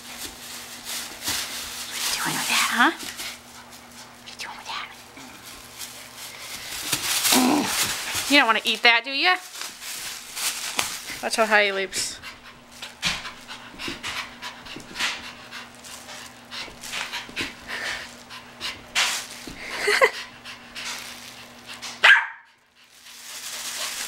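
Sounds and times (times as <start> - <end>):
dog panting excitedly: 10.9 - 24.0
dog yipping: 22.0 - 22.5.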